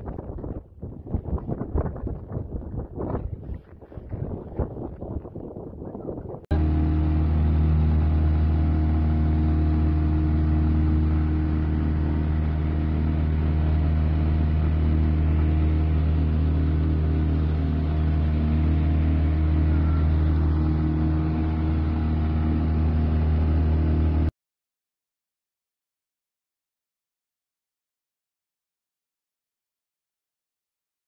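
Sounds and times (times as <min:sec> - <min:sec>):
outboard motor droning: 0:06.5 - 0:24.3.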